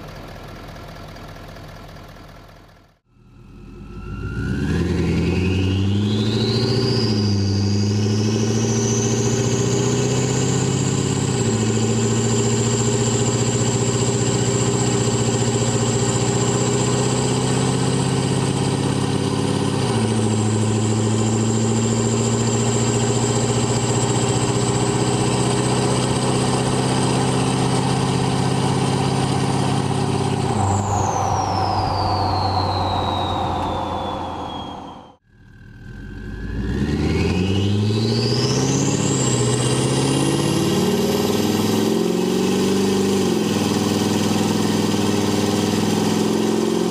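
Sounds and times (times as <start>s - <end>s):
diesel engine accelerating: 0.0s - 46.9s
turbo whistle: 30.3s - 36.6s.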